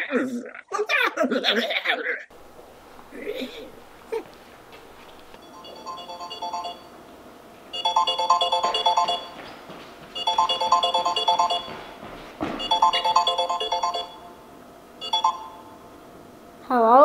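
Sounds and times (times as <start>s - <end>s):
phone ringtone melody: 5.4s - 7.0s, 7.7s - 9.4s, 10.2s - 11.9s, 12.6s - 15.8s.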